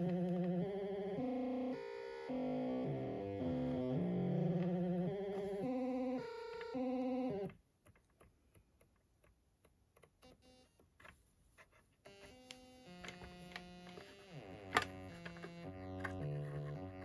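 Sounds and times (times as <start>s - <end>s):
synth notes stepping in pitch: 0.0s - 7.5s.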